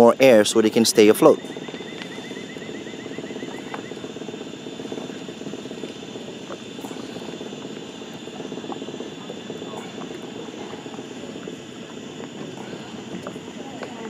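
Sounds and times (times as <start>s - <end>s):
rapid chirping trill: 0.0s - 6.4s
high insect drone: 0.0s - 14.0s
low rumbling noise: 0.0s - 14.0s.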